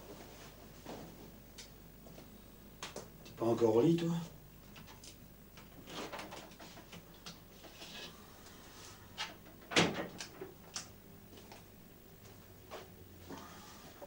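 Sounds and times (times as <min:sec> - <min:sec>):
door shutting: 0:09.7 - 0:10.2.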